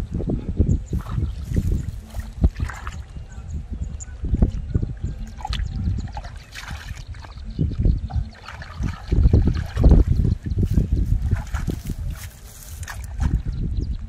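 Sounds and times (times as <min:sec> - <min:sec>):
mud squelching: 0:00.9 - 0:03.3, 0:05.1 - 0:13.6
hands splashing in muddy water: 0:01.0 - 0:03.1, 0:05.2 - 0:07.4, 0:08.1 - 0:13.4.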